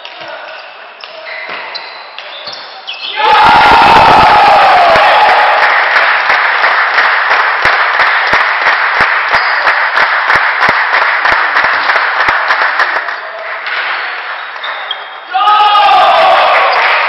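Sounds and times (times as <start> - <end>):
spectators applauding: 3.8 - 13.7
person clapping close by: 5.7 - 13.6.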